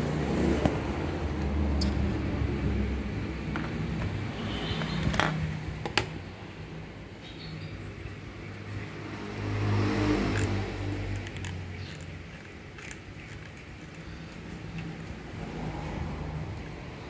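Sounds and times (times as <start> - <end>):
low engine-like hum: 0.0 - 5.1.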